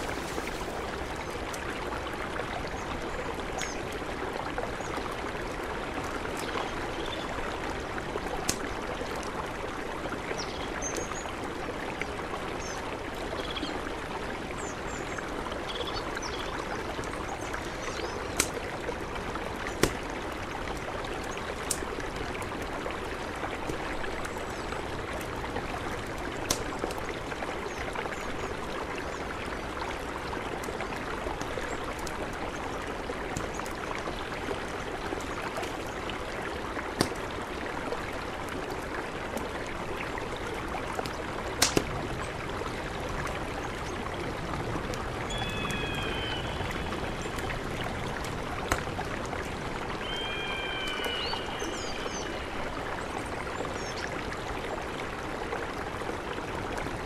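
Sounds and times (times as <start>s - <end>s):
campfire crackling: 0.0s - 2.5s, 16.9s - 22.7s, 24.9s - 27.1s, 40.2s - 45.4s
river flowing: 0.0s - 57.0s
faint bird chirps: 45.3s - 46.9s, 50.0s - 52.6s.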